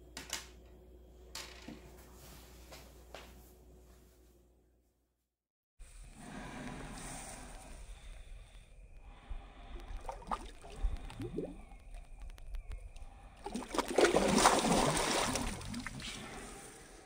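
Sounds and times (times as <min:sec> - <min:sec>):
small water sounds: 0:09.0 - 0:17.0
fish thrashing and splashing: 0:09.8 - 0:12.4, 0:13.3 - 0:16.2.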